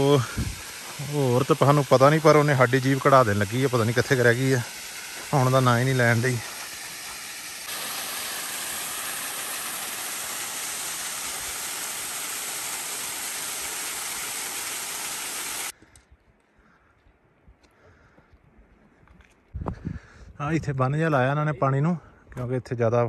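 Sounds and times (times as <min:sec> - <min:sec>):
rush of flowing water: 0:00.0 - 0:15.7.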